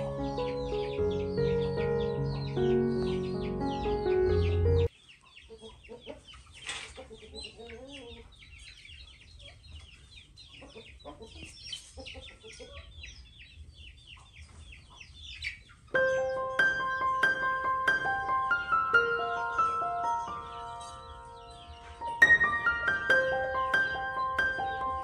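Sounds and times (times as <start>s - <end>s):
background music: 0.0s - 4.9s, 16.0s - 25.0s
chickens clucking: 0.0s - 25.0s
chicks peeping: 0.0s - 25.0s.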